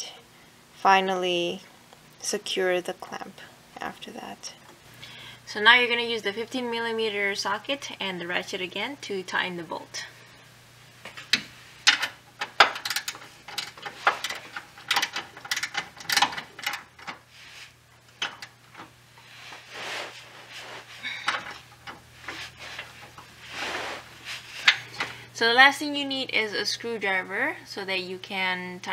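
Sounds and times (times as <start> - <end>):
hand ratchet clicking: 11.3 - 17.2
metal parts clinking: 11.9 - 17.2.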